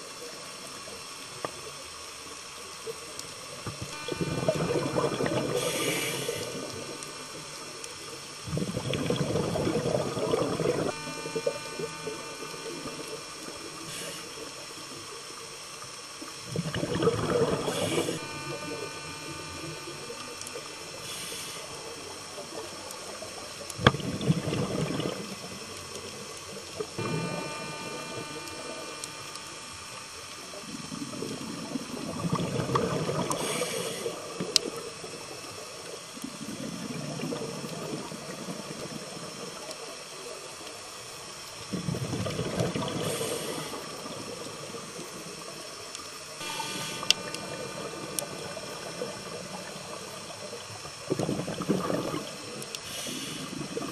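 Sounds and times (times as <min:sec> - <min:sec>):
exhaled bubbles gurgling: 0:02.9 - 0:53.9
short high hisses: 0:05.6 - 0:06.6.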